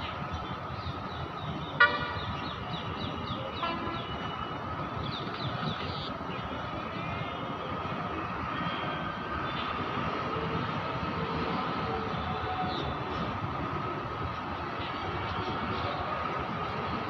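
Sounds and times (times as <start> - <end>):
traffic rumble: 0.0 - 17.0
vehicle horn toot: 1.8 - 2.2.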